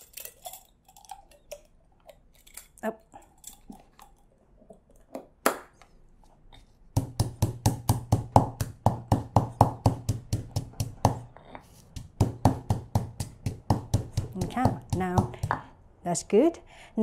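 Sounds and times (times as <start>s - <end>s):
stone pestle pounding in mortar: 7.0s - 11.3s, 11.9s - 15.7s.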